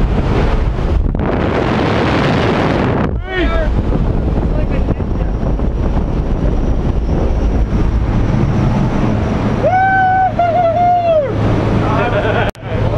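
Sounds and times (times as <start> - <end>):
plane engine and wind noise: 0.0 - 12.9
person yelling: 9.6 - 11.4.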